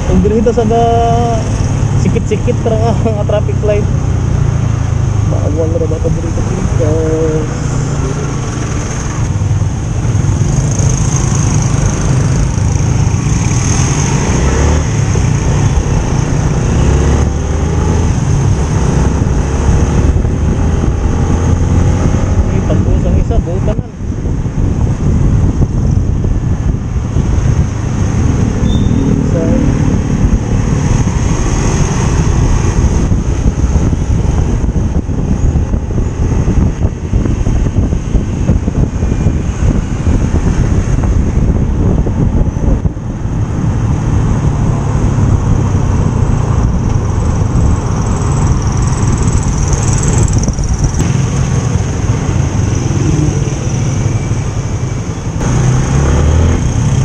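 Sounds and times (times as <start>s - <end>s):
wind and road rumble: 0.0s - 57.0s
motorcycle engine running: 45.2s - 54.1s.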